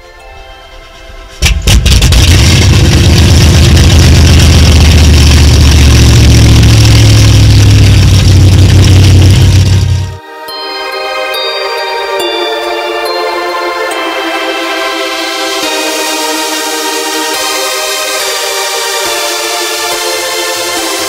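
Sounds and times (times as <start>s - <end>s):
powerboat engines starting and idling: 1.4s - 10.2s.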